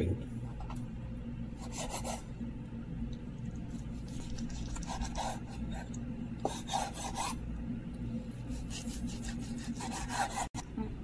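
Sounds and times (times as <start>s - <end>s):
knife sawing through steak: 8.5s - 10.5s.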